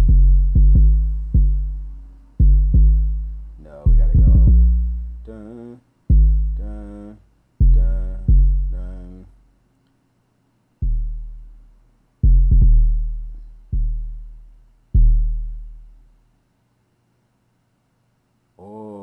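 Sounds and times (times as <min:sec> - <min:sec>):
deep bass notes: 0:00.0 - 0:05.5, 0:06.1 - 0:09.5, 0:10.8 - 0:16.2.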